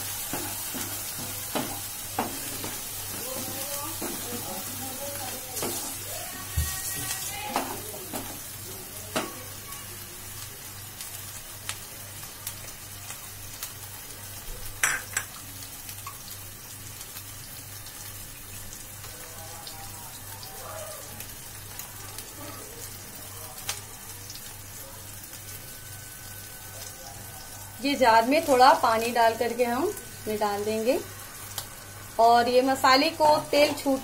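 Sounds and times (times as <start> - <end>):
paste sizzling and popping in oil: 0.0 - 8.5
spatula scraping and knocking on pan: 0.3 - 2.8, 3.4 - 4.4.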